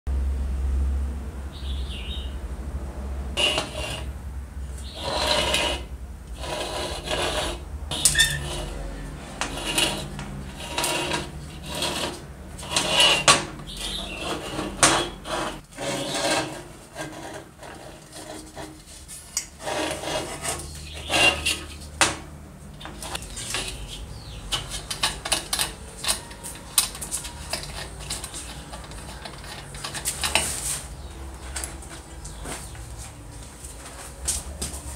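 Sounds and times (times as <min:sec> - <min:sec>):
metallic clicks and scrapes: 0:03.4 - 0:04.2, 0:04.8 - 0:31.9.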